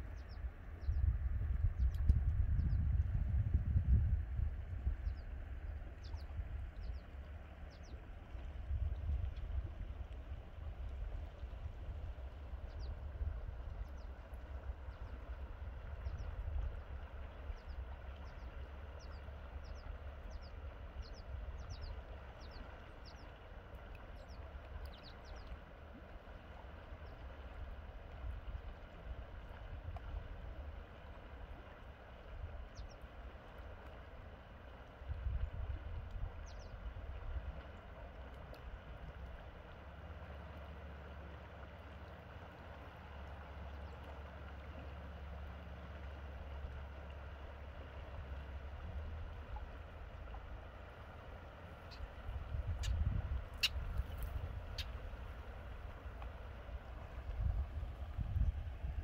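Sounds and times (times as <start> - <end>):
bird chirping: 0.0 - 1.1
low rumble: 0.0 - 18.4
wind rumble on microphone: 0.0 - 40.0, 45.9 - 59.0.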